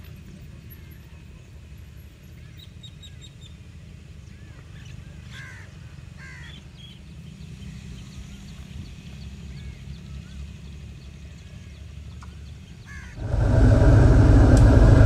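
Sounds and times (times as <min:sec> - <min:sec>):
steady low rumble: 0:13.2 - 0:15.0.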